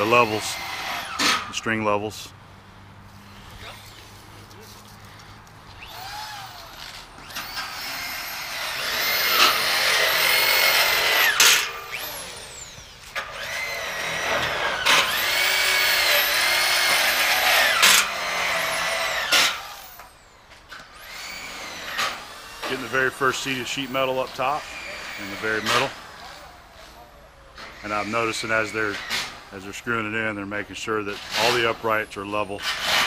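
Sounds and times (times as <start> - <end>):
cordless drill drilling into steel: 0.0 - 1.4, 5.8 - 20.2, 20.9 - 27.0.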